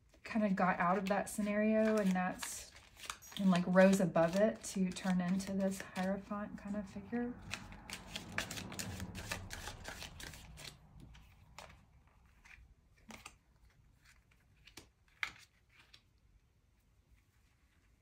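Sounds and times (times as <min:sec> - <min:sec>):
cards being shuffled: 0:00.8 - 0:06.3, 0:07.4 - 0:16.2.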